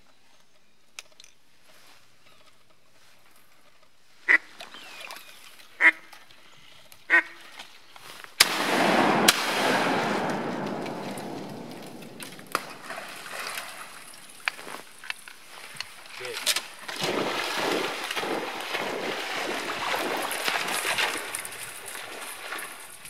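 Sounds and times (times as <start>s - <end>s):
shotgun firing: 8.4s - 14.0s.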